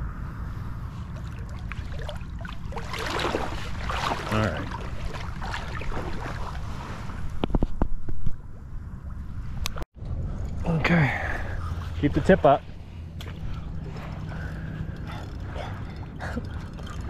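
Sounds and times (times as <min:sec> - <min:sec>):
wind rumble on microphone: 0:00.0 - 0:17.0
wading through shallow water: 0:00.9 - 0:07.4, 0:11.4 - 0:17.0.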